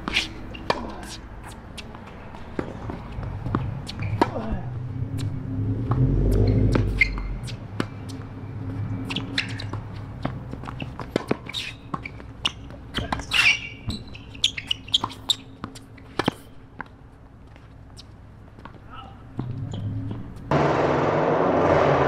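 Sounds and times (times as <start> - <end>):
racket hitting tennis ball: 0.0 - 1.9, 9.1 - 12.0
tennis ball bouncing: 0.0 - 4.4, 5.2 - 8.3, 9.0 - 17.0
shoes squeaking on court: 0.0 - 20.5
low rumble: 4.2 - 7.5, 19.6 - 22.0.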